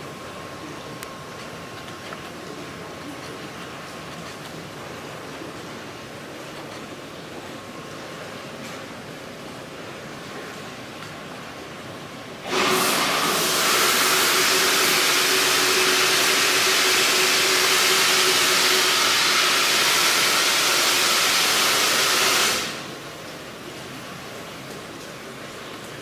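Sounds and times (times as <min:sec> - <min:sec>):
faint hum: 0:00.0 - 0:12.5
water equipment rushing hiss: 0:12.4 - 0:23.2.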